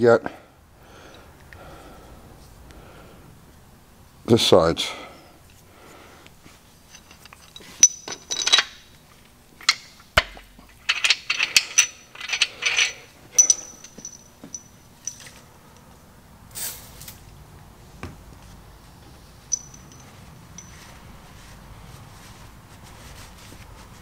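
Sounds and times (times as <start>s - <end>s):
metal engine parts clinking: 6.9s - 8.9s, 9.6s - 15.4s, 19.5s - 20.9s
short hiss: 16.5s - 17.1s.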